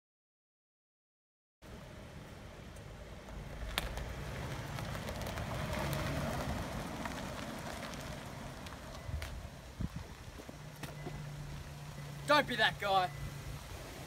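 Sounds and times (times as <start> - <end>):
low engine rumble: 1.6 - 14.0
tyres crunching on gravel: 3.1 - 14.0.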